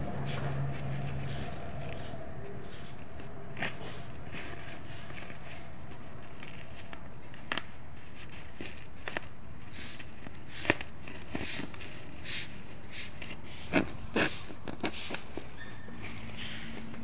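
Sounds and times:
plastic sack rustling and scraping: 0:00.2 - 0:17.0.

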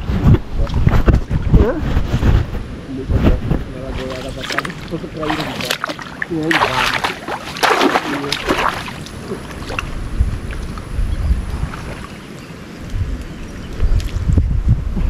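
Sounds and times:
wind rumble on microphone: 0:00.0 - 0:15.0
water splashing and sloshing: 0:03.3 - 0:14.3.

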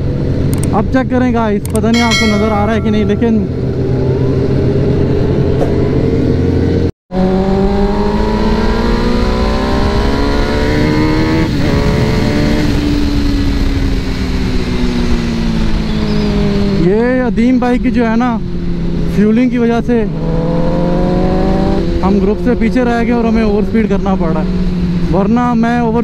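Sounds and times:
motorcycle engine at speed: 0:03.4 - 0:16.9, 0:19.9 - 0:25.9.

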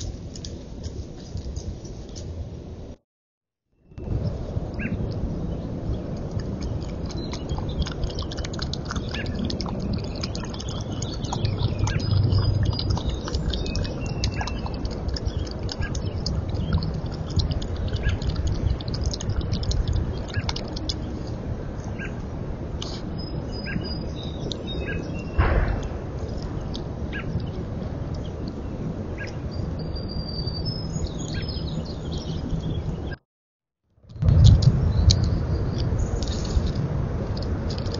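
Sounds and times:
small birds chirping: 0:03.9 - 0:22.2, 0:22.8 - 0:33.2, 0:34.8 - 0:36.8
low rumble: 0:04.0 - 0:22.8, 0:25.3 - 0:28.9, 0:34.0 - 0:37.9
small clicks and ticks: 0:06.1 - 0:21.1, 0:34.2 - 0:37.9.

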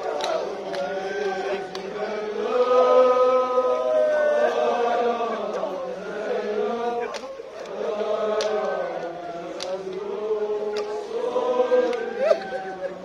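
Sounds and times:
men chanting a lament: 0:00.0 - 0:13.0
sharp slaps: 0:07.1 - 0:07.8, 0:08.4 - 0:08.8, 0:09.6 - 0:10.0, 0:10.7 - 0:11.0.

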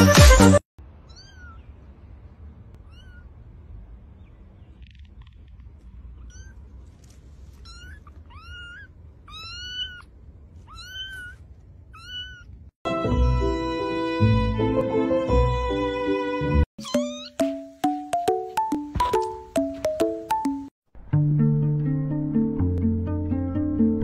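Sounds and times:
low background rumble: 0:00.8 - 0:12.8
kitten meowing: 0:01.0 - 0:01.7, 0:02.8 - 0:03.4, 0:06.2 - 0:06.7, 0:07.5 - 0:13.4, 0:16.8 - 0:17.4.

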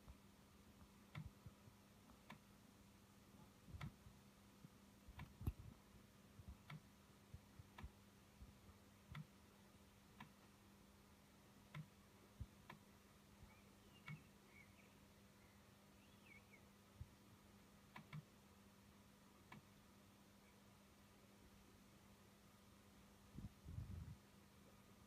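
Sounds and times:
faint low hum: 0:00.0 - 0:25.0
faint sharp clicks: 0:00.8 - 0:02.5, 0:04.6 - 0:05.7, 0:06.4 - 0:06.9, 0:07.6 - 0:08.0, 0:09.0 - 0:09.4, 0:11.6 - 0:12.9, 0:14.0 - 0:14.3, 0:17.9 - 0:18.3, 0:19.4 - 0:19.8.

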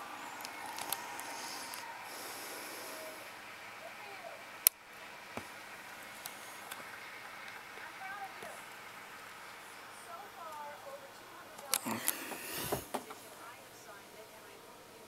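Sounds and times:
faint indistinct voices: 0:00.0 - 0:15.0
steady background hiss: 0:00.0 - 0:15.0.

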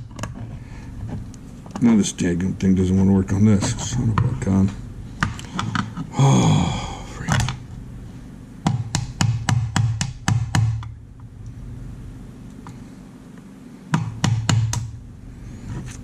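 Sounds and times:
hammer tapping on pins: 0:08.6 - 0:10.9, 0:13.9 - 0:14.9.

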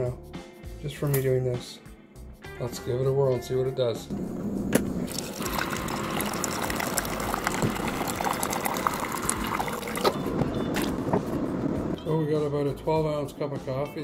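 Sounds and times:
coffee maker pump running: 0:04.7 - 0:10.2
coffee pouring into a mug: 0:05.0 - 0:10.2.

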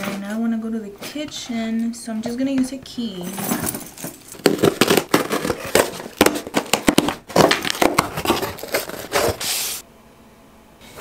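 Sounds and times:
packaging ripping and crinkling: 0:04.4 - 0:09.8.

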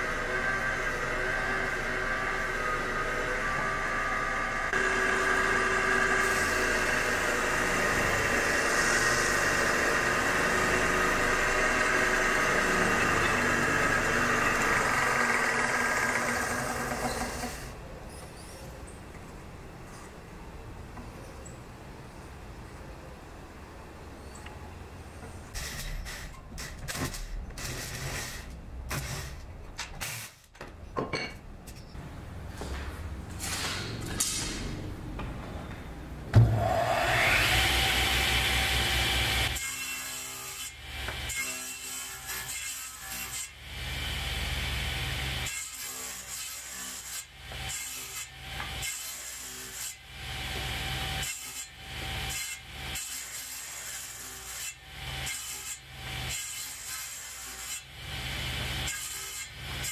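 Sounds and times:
saw blade cutting wood: 0:00.0 - 0:17.7, 0:36.4 - 0:59.9
table saw motor hum: 0:00.1 - 0:17.6.

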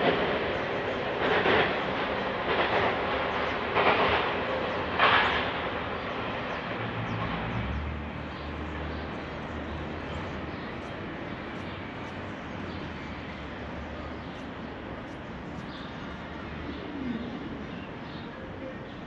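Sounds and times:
freight train rail noise: 0:00.0 - 0:19.0.

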